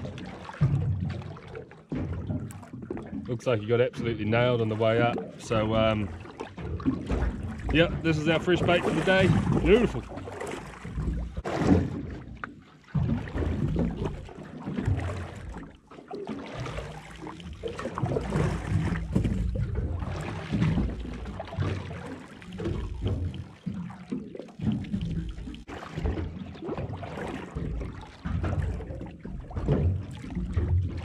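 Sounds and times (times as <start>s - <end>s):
water slapping against boat hull: 0.0s - 31.0s.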